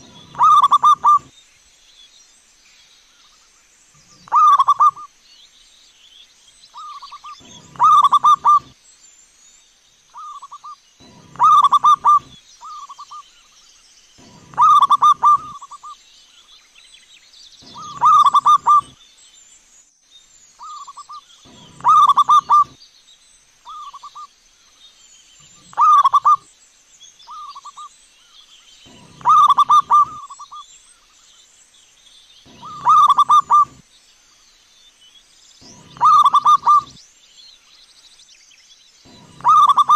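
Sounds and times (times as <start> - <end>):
dove cooing: 0.0 - 1.3, 4.2 - 5.1, 6.9 - 8.7, 10.2 - 13.0, 14.2 - 15.9, 17.6 - 19.0, 20.6 - 22.8, 25.5 - 26.4, 28.9 - 30.6, 32.5 - 33.8, 35.6 - 37.0, 39.1 - 39.9.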